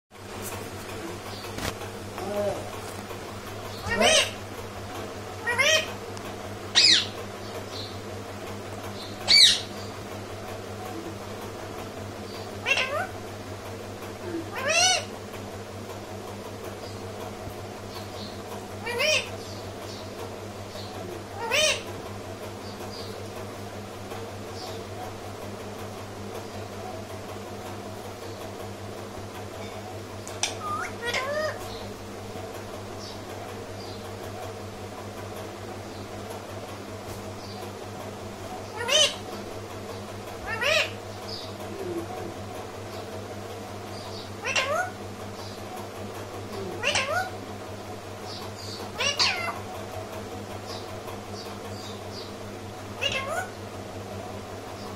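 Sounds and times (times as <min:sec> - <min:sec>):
steady low hum: 0:00.1 - 0:54.9
parakeet call: 0:03.7 - 0:04.4, 0:05.4 - 0:06.0, 0:06.7 - 0:07.2, 0:09.2 - 0:09.8, 0:12.6 - 0:13.2, 0:14.5 - 0:15.1, 0:18.8 - 0:19.5, 0:21.4 - 0:21.9, 0:30.4 - 0:31.8, 0:38.6 - 0:39.4, 0:40.5 - 0:41.4, 0:44.0 - 0:45.0, 0:46.8 - 0:47.4, 0:48.6 - 0:49.6, 0:53.0 - 0:53.6.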